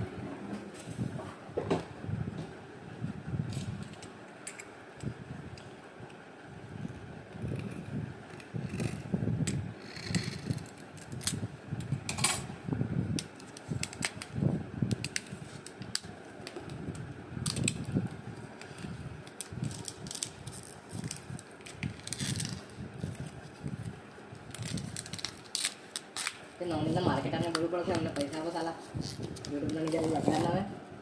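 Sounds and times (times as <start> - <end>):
plastic wrap crinkling and tearing: 17.4 - 28.4, 29.0 - 30.6.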